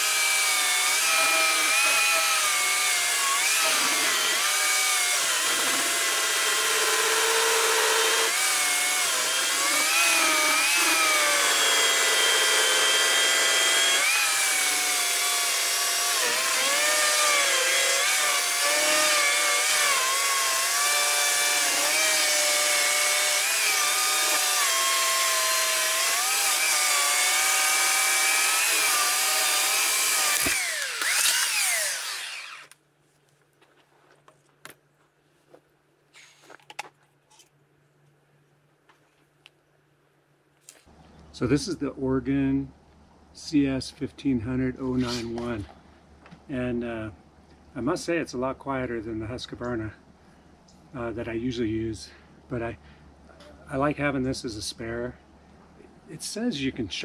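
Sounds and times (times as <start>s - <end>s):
electric chainsaw cutting log: 0.0s - 32.8s.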